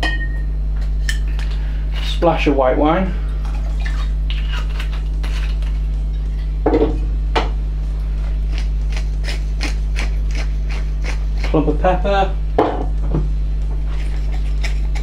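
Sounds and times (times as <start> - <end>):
steady low hum: 0.0 - 15.0
pepper mill grinding: 4.3 - 5.8.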